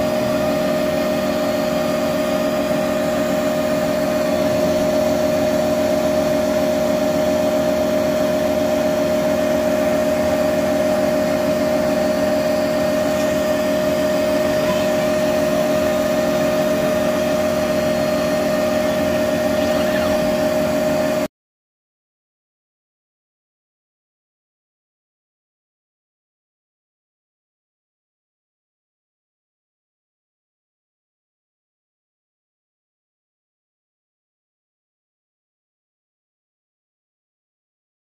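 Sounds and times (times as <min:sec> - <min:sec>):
constant whine: 0:00.0 - 0:21.3
laser cutter humming: 0:00.0 - 0:21.3.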